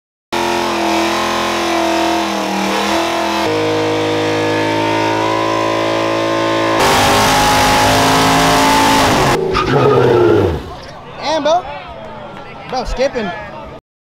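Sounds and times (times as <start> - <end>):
car engines revving high: 0.3 - 10.8.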